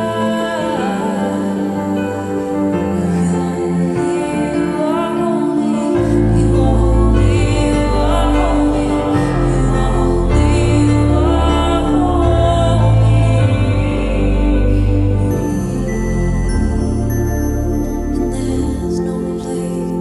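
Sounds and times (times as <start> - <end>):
held chords: 0.0 - 20.0
person singing long notes: 0.0 - 20.0
deep bass notes: 6.0 - 20.0.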